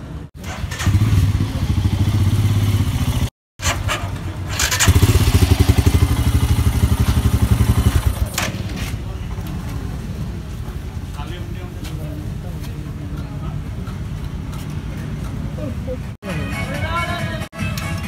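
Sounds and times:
motorcycle engine running: 0:00.6 - 0:03.3, 0:04.5 - 0:08.3.

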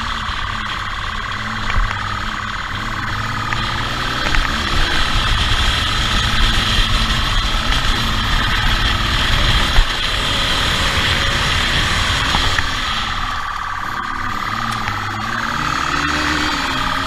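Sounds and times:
motorcycle engine running: 0:00.0 - 0:17.0
wind rush on microphone: 0:03.7 - 0:13.9.

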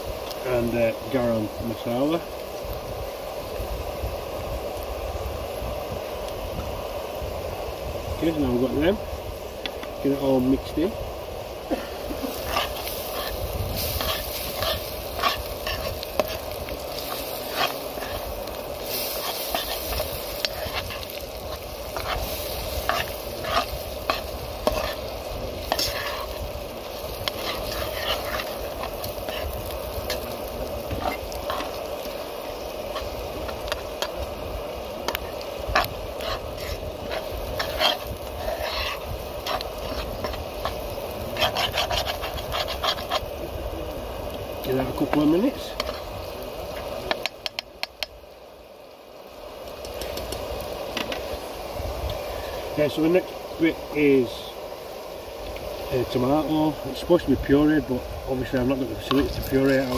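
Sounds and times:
vegetables sizzling in a pan: 0:00.0 - 0:59.9
spoon scraping a pan: 0:12.2 - 0:31.9, 0:35.1 - 0:43.3, 0:45.7 - 0:46.1.

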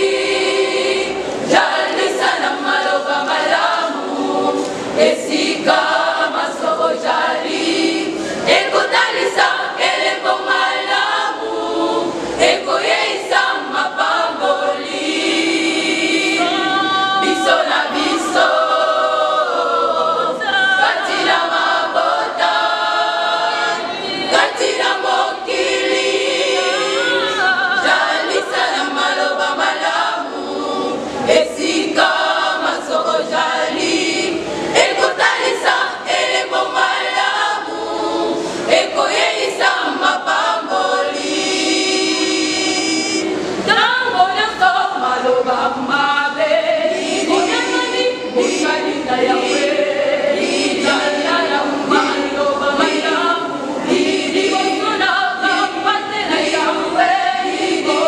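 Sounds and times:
choir singing gospel: 0:00.0 - 0:58.0.

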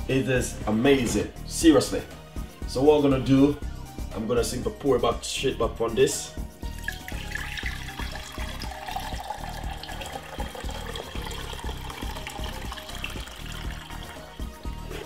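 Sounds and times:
liquid pouring into jug: 0:06.7 - 0:15.0.

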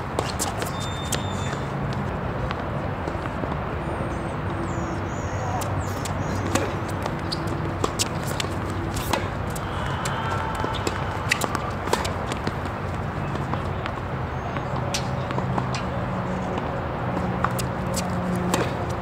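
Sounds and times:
steady background noise: 0:00.0 - 0:19.0.

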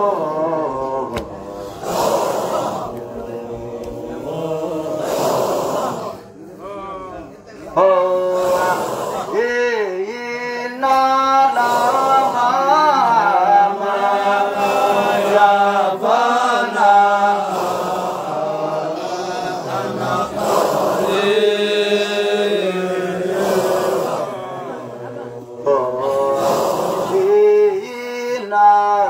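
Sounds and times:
man singing into a microphone: 0:00.0 - 0:01.6, 0:07.8 - 0:17.4, 0:25.6 - 0:29.0
men chanting: 0:00.0 - 0:29.0.

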